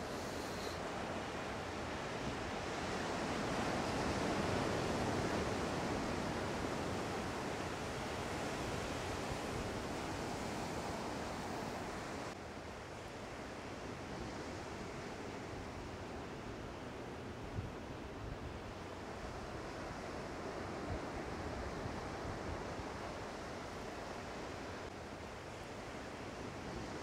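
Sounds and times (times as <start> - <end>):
ocean surf rushing: 0.0 - 12.4.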